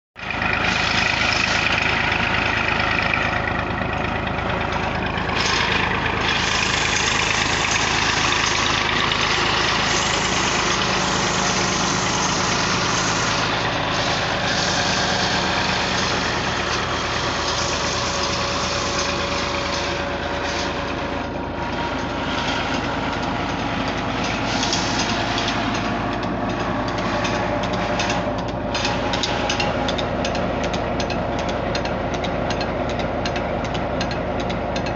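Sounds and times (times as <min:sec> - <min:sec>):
tractor diesel engine running: 0:00.2 - 0:34.9.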